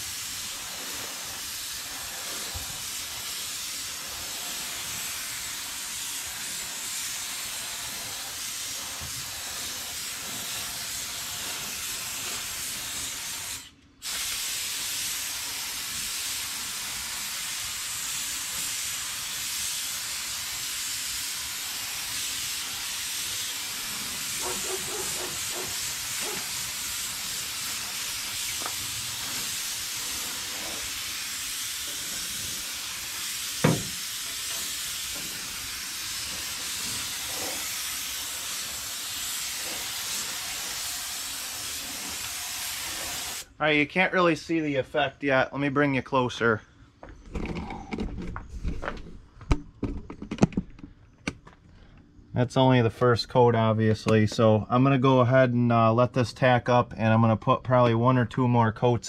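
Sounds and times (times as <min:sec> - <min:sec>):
paint spray gun hissing: 0:00.0 - 0:43.5.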